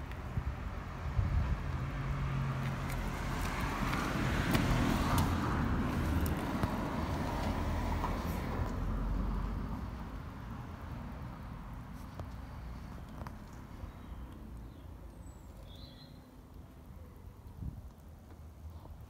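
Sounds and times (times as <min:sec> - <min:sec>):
car passing: 0:00.8 - 0:13.8.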